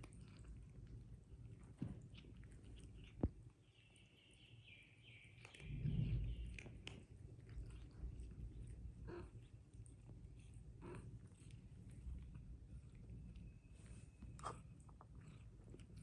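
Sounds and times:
cats crunching dry kibble: 0.0 - 3.6, 5.3 - 16.0
low rumble: 5.6 - 9.4.

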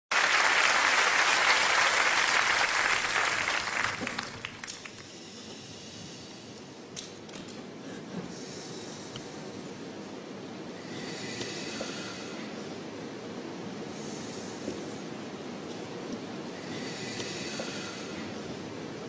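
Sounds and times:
audience applause: 0.1 - 5.0.

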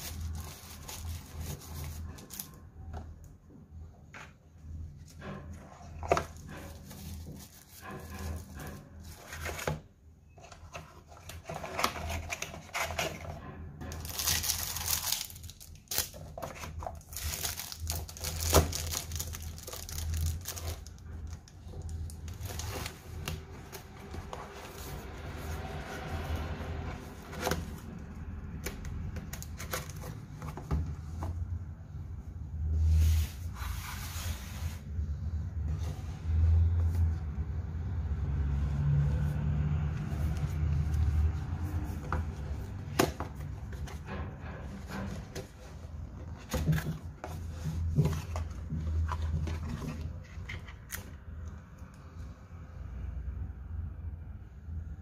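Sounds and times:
cardboard box scraping and rustling: 5.1 - 14.7, 22.3 - 28.1, 32.7 - 37.1, 44.7 - 50.8.

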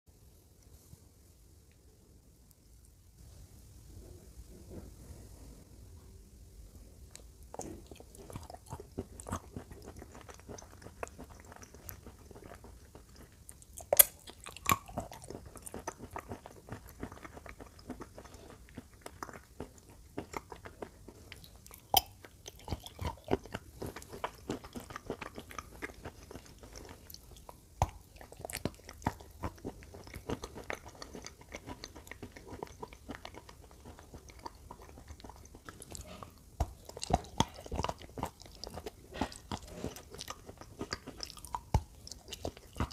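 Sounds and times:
person crunching and chewing: 7.2 - 42.9.

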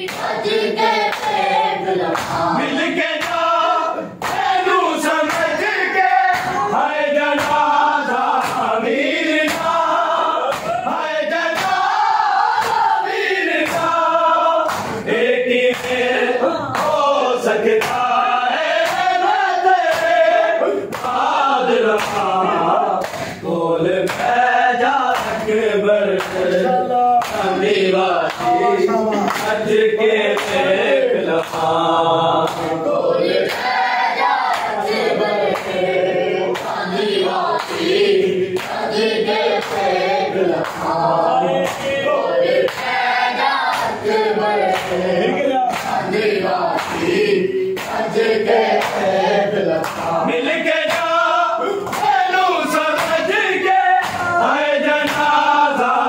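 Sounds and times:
men chanting together: 0.0 - 56.0
hands slapping chests: 0.1 - 0.4, 1.1 - 1.4, 2.0 - 2.6, 3.2 - 3.5, 4.1 - 6.7, 7.3 - 8.7, 9.4 - 10.8, 11.4 - 13.0, 14.6 - 15.1, 15.7 - 17.1, 17.8 - 22.4, 23.0 - 23.4, 24.1 - 24.4, 25.1 - 25.6, 26.2 - 27.5, 28.2 - 29.7, 30.3 - 30.7, 31.4 - 31.7, 32.4 - 32.8, 33.4 - 35.8, 36.5 - 38.9, 39.6 - 39.9, 40.6 - 41.0, 41.6 - 42.0, 42.6 - 45.0, 45.7 - 48.1, 48.7 - 49.1, 49.8 - 50.2, 50.8 - 51.2, 51.8 - 52.2, 52.9 - 53.3, 54.0 - 54.4, 55.0 - 55.4.

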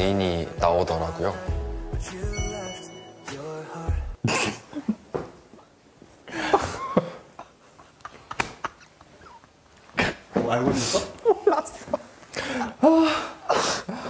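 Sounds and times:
men laughing: 6.3 - 9.5, 10.8 - 14.0.

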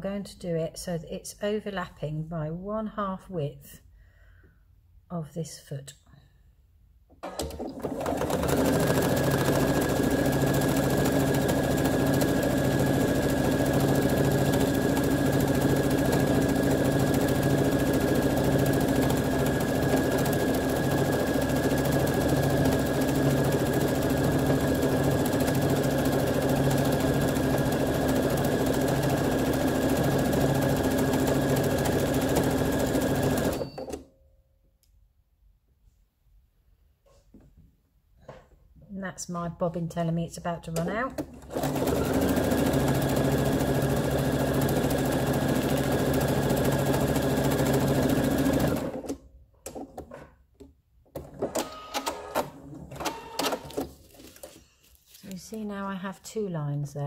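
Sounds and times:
sewing machine stitching: 7.2 - 34.0, 40.7 - 50.0, 51.2 - 54.0.

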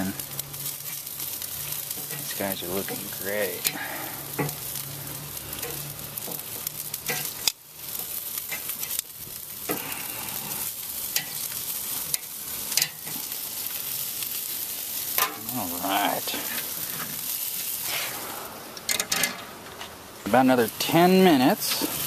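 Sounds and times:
meat sizzling on a grill: 0.0 - 22.0.

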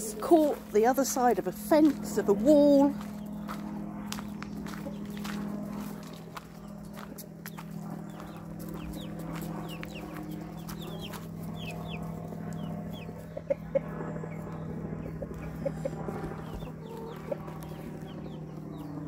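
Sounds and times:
chick peeping: 4.2 - 5.4, 6.6 - 18.9
hens clucking: 6.7 - 18.9.

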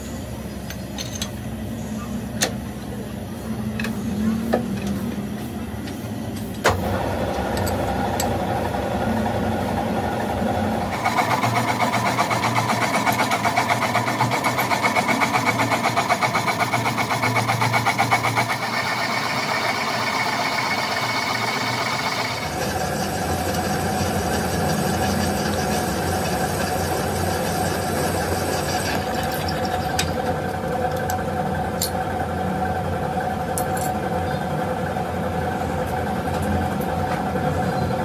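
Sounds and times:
metal lathe running: 6.8 - 31.9
rhythmic pulsing of tool cutting: 10.8 - 30.0.

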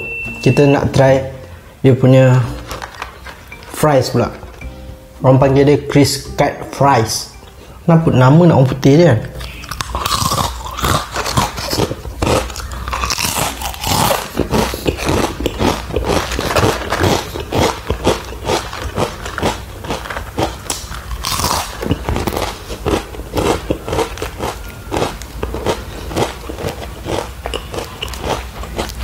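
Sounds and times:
crunchy fries being chewed: 9.3 - 29.0.

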